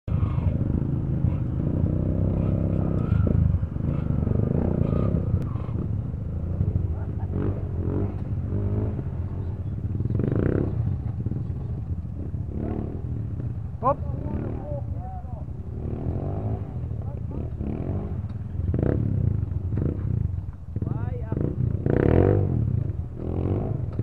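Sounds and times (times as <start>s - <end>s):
dirt bike engines idling and revving: 0.0s - 24.0s.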